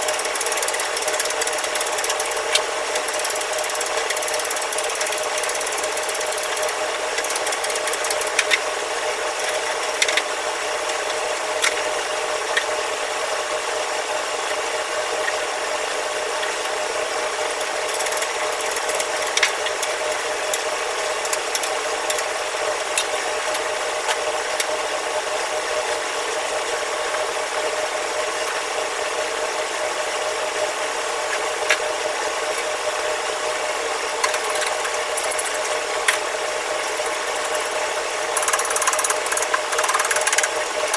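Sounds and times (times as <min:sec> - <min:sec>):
mechanical whir and hum: 0:00.0 - 0:40.9.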